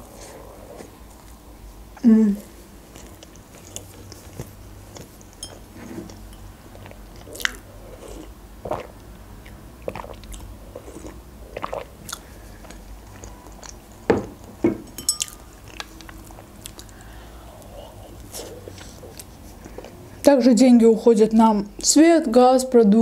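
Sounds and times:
person chewing: 2.6 - 14.1, 15.0 - 20.0.

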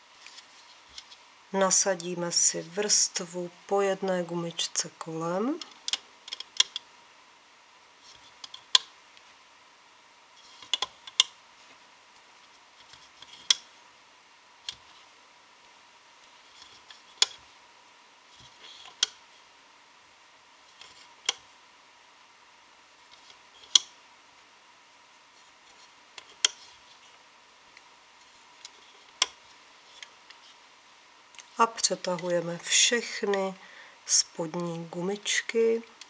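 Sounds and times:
faint high hum: 11.5 - 36.0.

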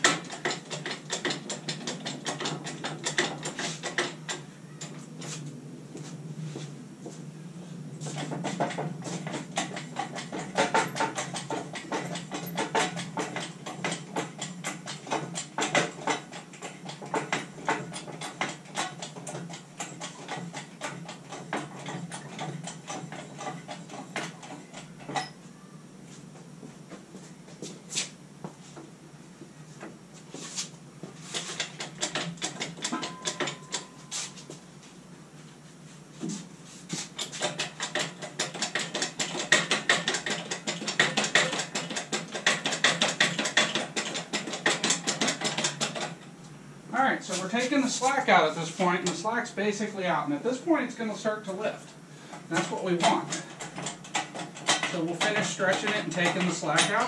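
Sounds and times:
crane lifting gear clicking: 8.2 - 25.3, 31.6 - 34.0, 37.2 - 46.2.

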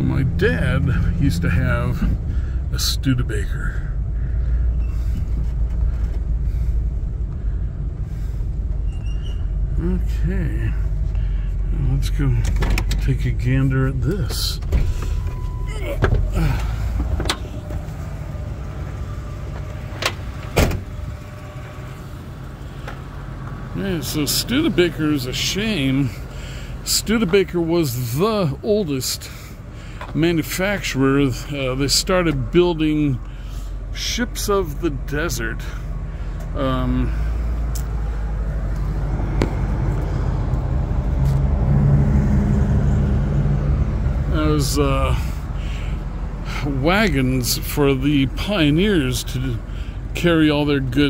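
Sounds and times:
low rumble: 0.0 - 22.6, 37.1 - 44.3
car door opening and shutting: 12.4 - 13.1, 14.6 - 18.2, 19.5 - 21.2.

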